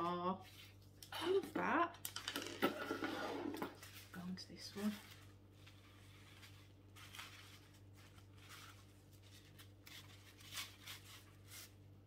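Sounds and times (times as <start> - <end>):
low steady hum: 0.0 - 12.0
tissue paper rustling: 3.8 - 12.0.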